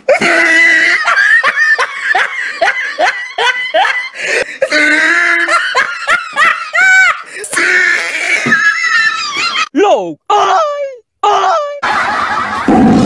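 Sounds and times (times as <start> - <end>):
person laughing: 0.1 - 9.7.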